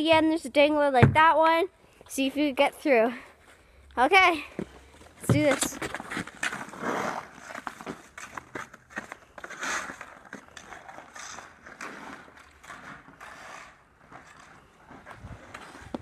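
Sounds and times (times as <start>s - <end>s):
skate blades scraping ice: 5.3s - 16.0s.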